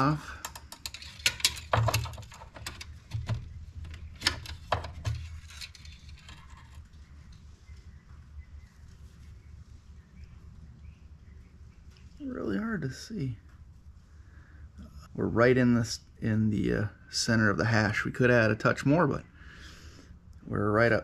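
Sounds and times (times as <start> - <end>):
low steady hum: 0.0 - 21.0
dipstick clicks and scrapes: 0.4 - 6.9.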